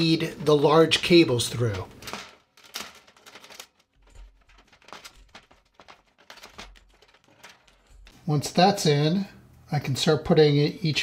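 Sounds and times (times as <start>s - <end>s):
cable handling clicks and rustles: 0.0s - 8.3s.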